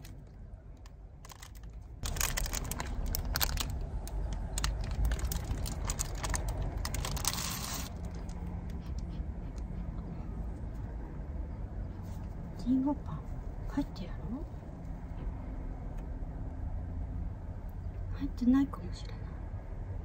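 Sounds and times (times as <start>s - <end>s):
plastic wrapper crinkling: 0.0s - 8.4s.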